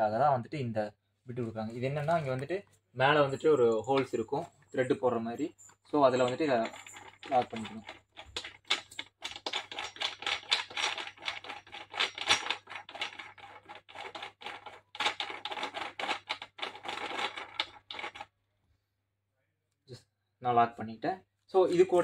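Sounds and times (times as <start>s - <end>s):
metallic clicks and scrapes: 5.6s - 18.3s.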